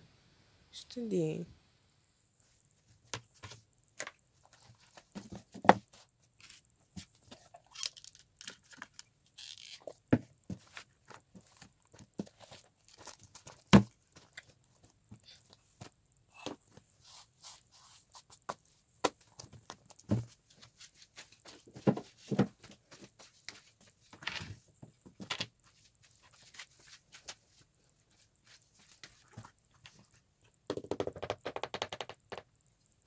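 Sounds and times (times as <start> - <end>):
knocks of books on a desk: 5.0 - 6.0, 10.1 - 12.4, 13.4 - 14.4, 18.5 - 20.4, 21.4 - 23.1.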